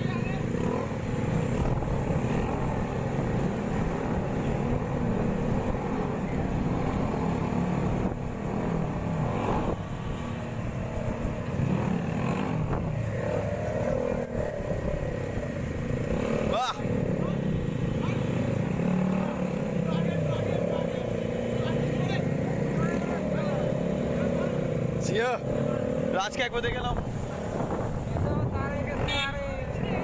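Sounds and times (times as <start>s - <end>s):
motorcycle engines running: 0.0s - 30.0s.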